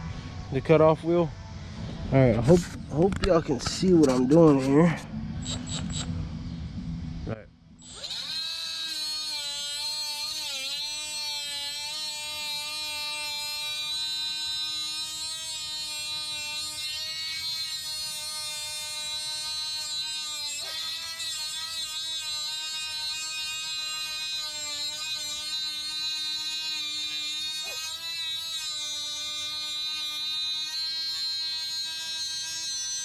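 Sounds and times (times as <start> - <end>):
cut-off tool cutting metal: 7.8 - 33.0.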